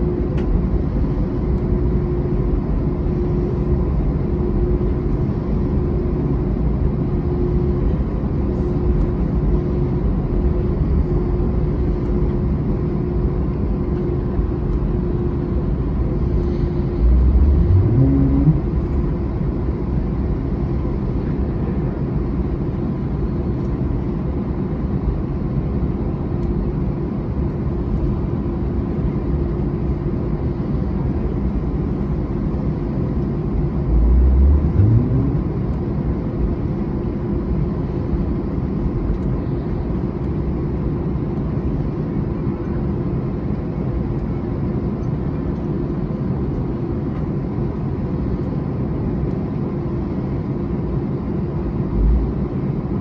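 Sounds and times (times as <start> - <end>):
aircraft cabin engine rumble: 0.0 - 53.0
low sound rising in pitch: 17.0 - 19.1, 33.9 - 35.8.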